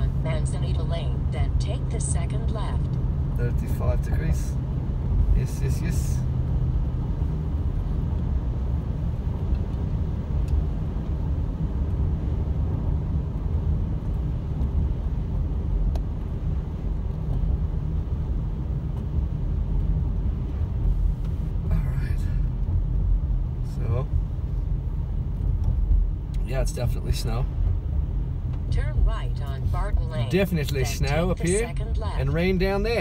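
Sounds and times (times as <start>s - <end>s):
car engine and tyre noise on wet road: 0.0s - 33.0s.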